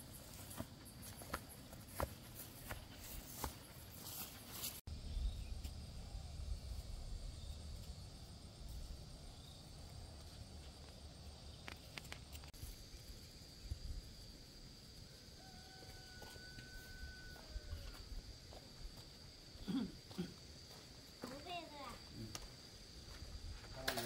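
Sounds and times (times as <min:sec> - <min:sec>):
high-pitched insect drone: 0:11.2 - 0:24.0.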